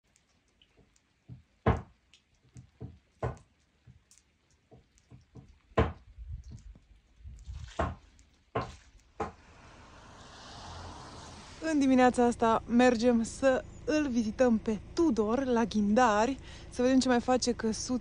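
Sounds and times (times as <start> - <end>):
footsteps on wet muddy ground: 6.2 - 9.2.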